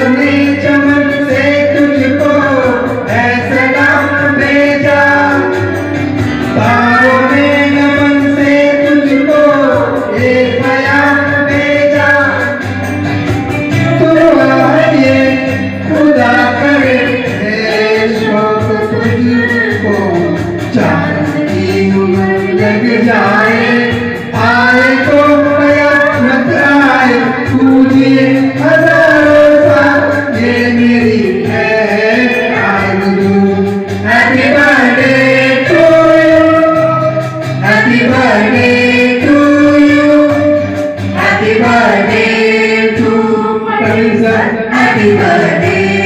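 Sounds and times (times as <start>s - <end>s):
man singing: 0.0s - 12.9s, 13.5s - 46.0s
woman singing: 18.1s - 23.2s, 43.1s - 46.0s.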